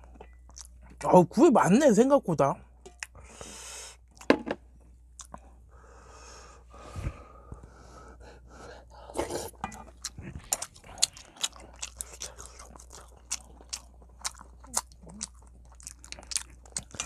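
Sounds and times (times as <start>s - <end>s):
heavy breathing: 5.7s - 9.6s
slurping soup: 9.0s - 12.9s
wet chewing clicks: 10.0s - 17.0s.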